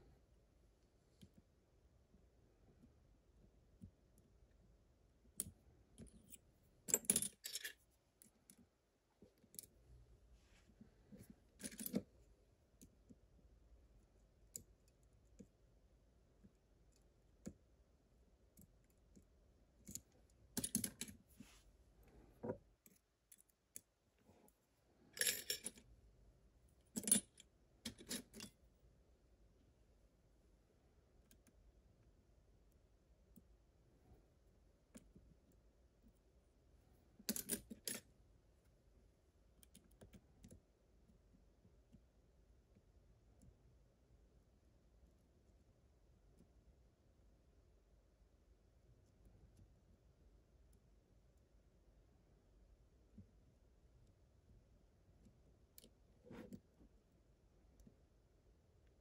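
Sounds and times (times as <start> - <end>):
lock picks clicking and scraping: 25.2 - 25.9, 26.8 - 28.6, 37.2 - 38.0.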